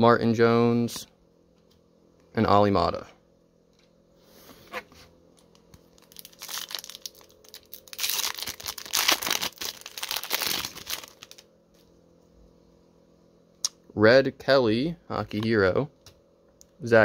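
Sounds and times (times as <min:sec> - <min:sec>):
foil wrapper crinkling and tearing: 0:05.9 - 0:11.4.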